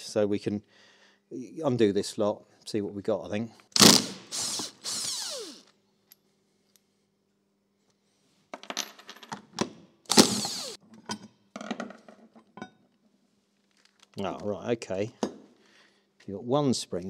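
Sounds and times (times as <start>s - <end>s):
cordless power driver spinning: 3.9s - 5.7s, 10.1s - 10.8s.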